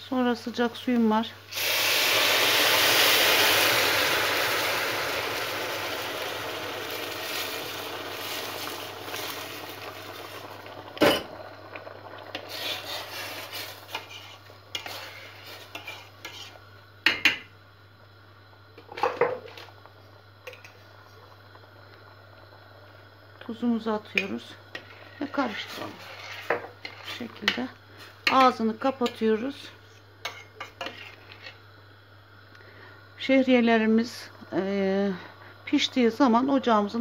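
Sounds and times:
hot water sizzling in a pot: 0.0 - 37.0.

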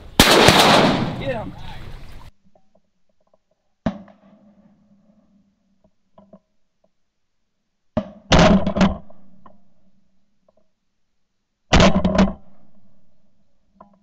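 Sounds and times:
shotgun blasts: 0.1 - 1.5, 8.3 - 9.1, 11.7 - 12.6.

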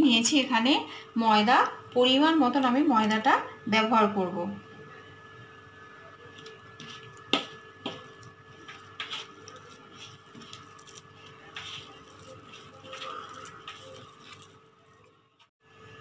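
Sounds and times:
hand kneading wet dough: 6.3 - 15.1.

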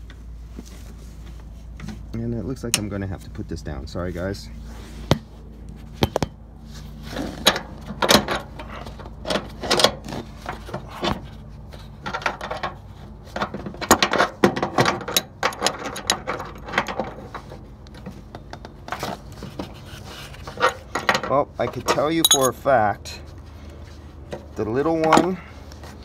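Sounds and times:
wrenches clicking on brass nuts: 22.2 - 22.6.

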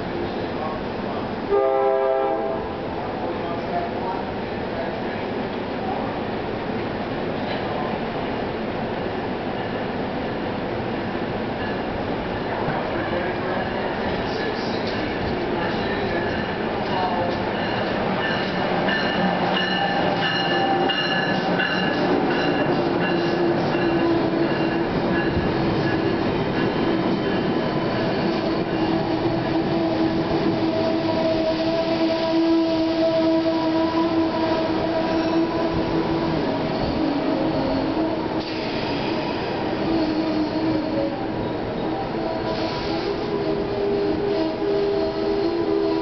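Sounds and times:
train rolling past: 0.0 - 46.0.

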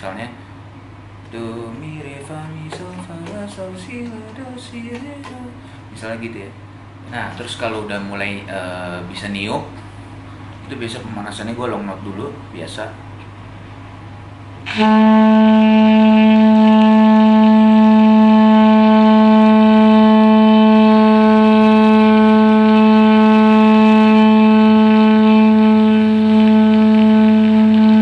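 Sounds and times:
saxophone long held note: 14.7 - 28.0.

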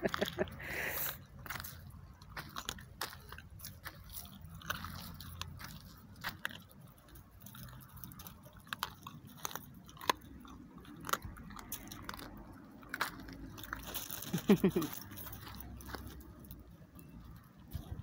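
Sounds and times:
dog chewing on a bone: 1.3 - 14.4.

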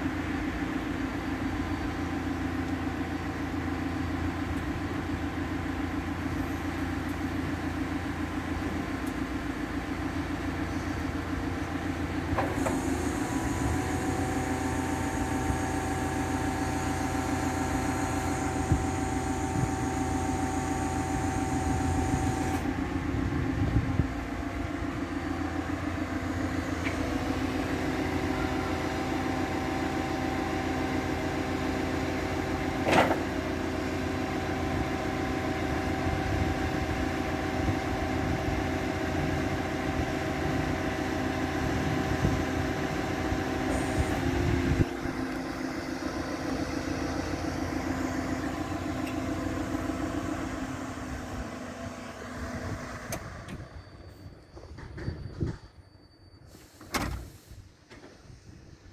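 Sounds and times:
diesel engine idling: 0.0 - 54.6
metal clunk: 32.8 - 33.3.

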